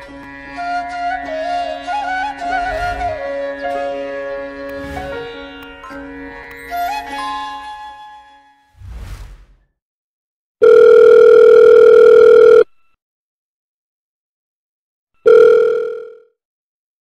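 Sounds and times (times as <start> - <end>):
phone ringback tone: 10.6 - 12.8, 15.2 - 16.4.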